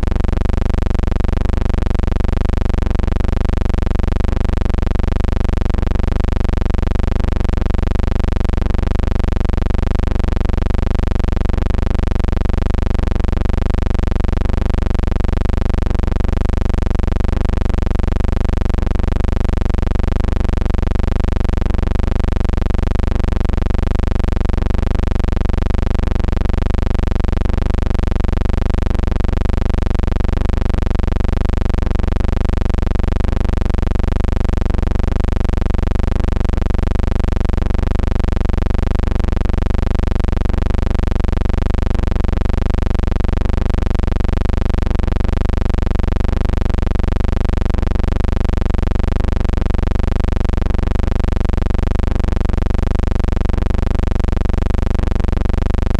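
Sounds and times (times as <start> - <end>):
loud low hum: 0.0 - 32.0.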